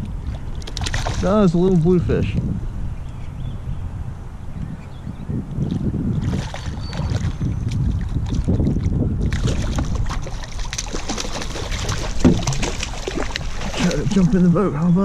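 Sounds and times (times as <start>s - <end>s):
wind rumble on microphone: 0.0s - 15.0s
fish thrashing and splashing: 0.6s - 1.3s, 6.2s - 14.5s.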